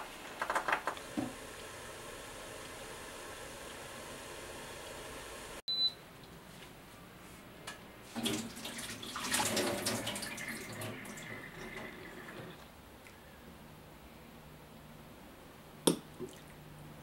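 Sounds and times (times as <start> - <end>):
pot simmering hiss: 0.0 - 5.6
tap water running into a sink: 8.2 - 12.6.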